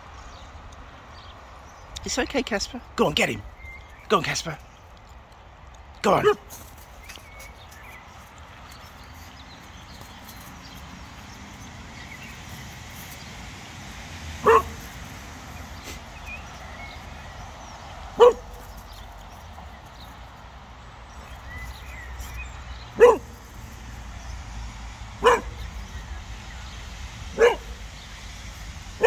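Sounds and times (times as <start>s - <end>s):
dog barking: 6.2s - 6.5s, 14.4s - 14.9s, 18.2s - 18.6s, 22.9s - 23.4s, 25.2s - 25.7s, 27.3s - 27.8s.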